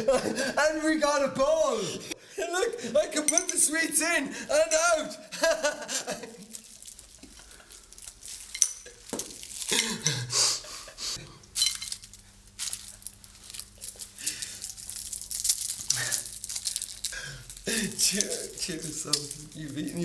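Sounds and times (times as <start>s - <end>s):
people laughing: 0.0s - 0.7s, 5.3s - 6.5s, 9.8s - 11.2s
wrapper crinkling: 5.6s - 10.3s, 11.5s - 20.0s
sweets rattling in glass bowl: 6.4s - 10.0s, 11.6s - 20.0s.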